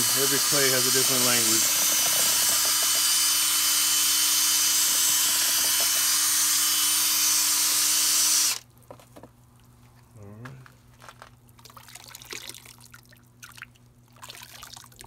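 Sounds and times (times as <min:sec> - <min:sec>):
cordless drill whining: 0:00.0 - 0:08.6.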